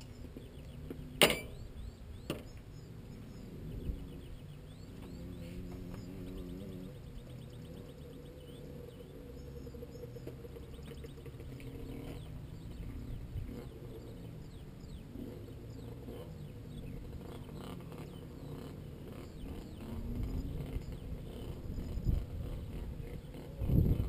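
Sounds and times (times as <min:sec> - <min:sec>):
motocross bike engines revving: 0:00.0 - 0:24.0
wind buffeting microphone: 0:19.4 - 0:24.0.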